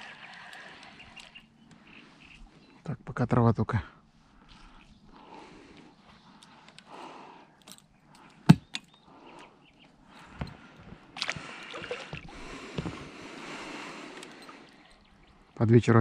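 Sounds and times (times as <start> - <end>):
water sloshing and splashing: 11.0 - 13.2.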